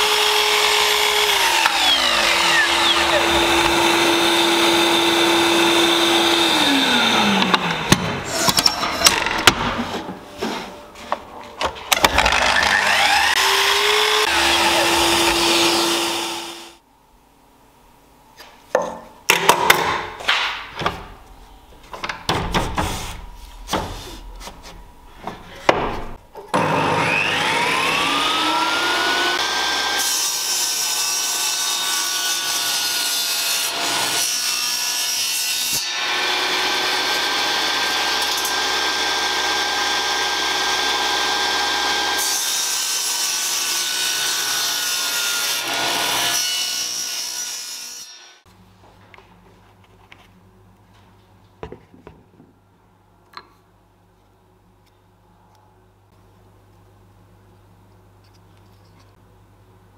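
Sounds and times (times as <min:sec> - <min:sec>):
table saw motor whining: 0:00.0 - 0:08.9, 0:12.0 - 0:16.8, 0:26.6 - 0:30.1
saw blade cutting wood: 0:00.0 - 0:09.3, 0:11.9 - 0:16.8.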